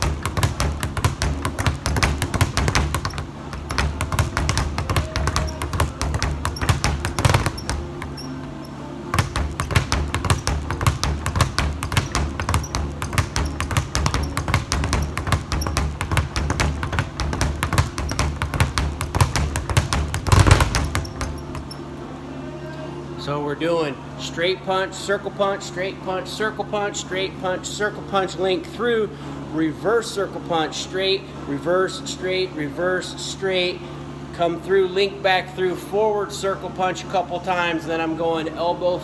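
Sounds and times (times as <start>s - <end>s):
speed bag being punched: 0.0s - 8.3s, 9.1s - 21.8s.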